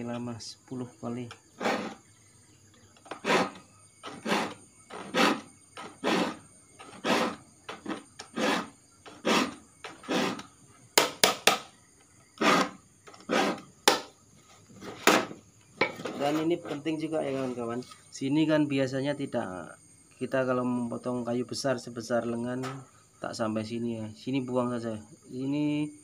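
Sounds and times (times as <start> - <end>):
file rasping on saw teeth: 1.6 - 2.0, 3.0 - 10.5, 12.4 - 13.7.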